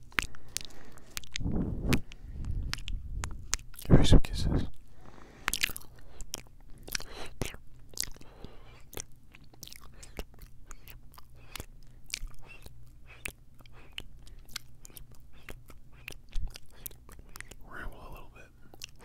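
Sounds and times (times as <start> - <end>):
tongue clicks: 0.0 - 4.0, 5.4 - 17.6, 18.7 - 19.0
kisses and lip smacks: 0.0 - 4.6, 8.8 - 17.6.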